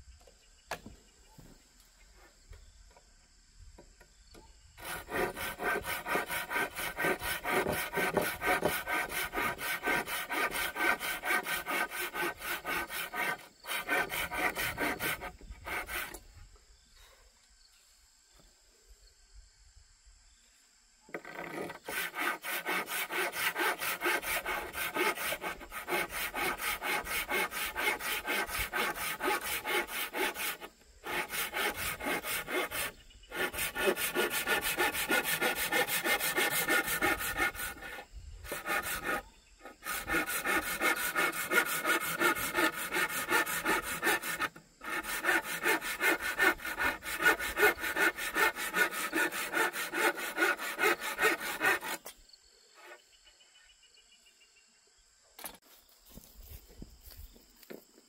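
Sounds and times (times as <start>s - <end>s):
hand saw cutting wood: 4.8s - 16.2s, 21.1s - 52.2s, 52.8s - 53.0s.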